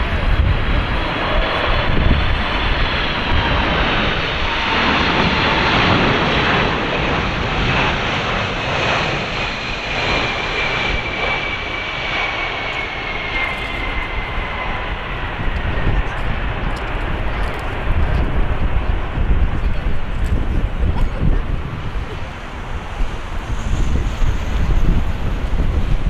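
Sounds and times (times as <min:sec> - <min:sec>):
high jet engine whine: 0:00.0 - 0:26.0
jet engines roaring: 0:00.0 - 0:26.0.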